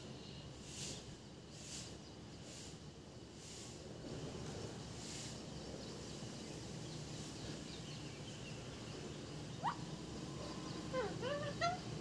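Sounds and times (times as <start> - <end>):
low outdoor background noise: 0.0 - 12.0
faint bird chirps: 4.6 - 12.0.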